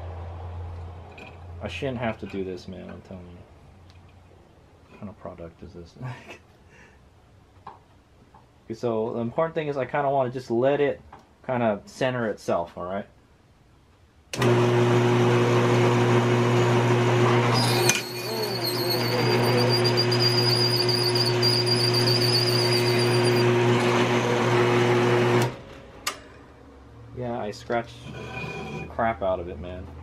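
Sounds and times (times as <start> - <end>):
drill press motor hum: 14.4 - 25.6
drill bit squealing in brass: 17.6 - 23.5
drill press switch: 17.6 - 23.9.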